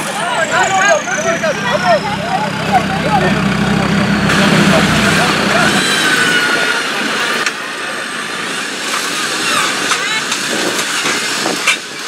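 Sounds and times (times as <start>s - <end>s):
truck engine running hard: 0.0s - 8.5s.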